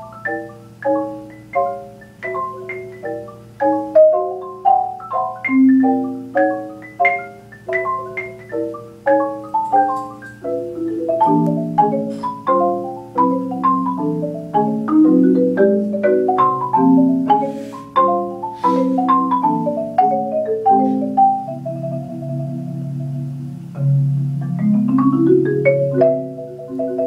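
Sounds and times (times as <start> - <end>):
marimbas played with mallets: 0.0 - 27.0.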